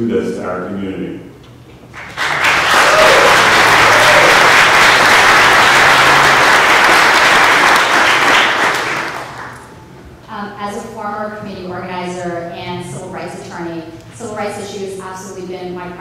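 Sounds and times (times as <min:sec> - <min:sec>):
audience applauding: 0:01.9 - 0:09.8.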